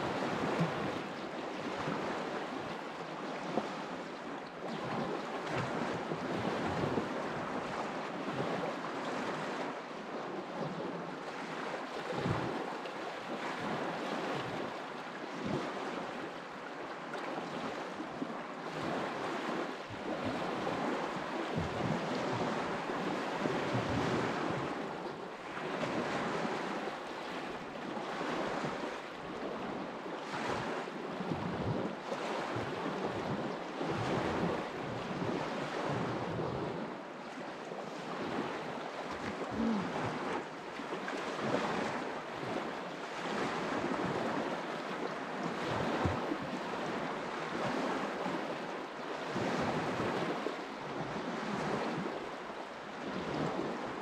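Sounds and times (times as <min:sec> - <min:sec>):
rushing river water: 0:00.0 - 0:54.0
wind gusts on microphone: 0:18.7 - 0:37.2, 0:45.5 - 0:48.6.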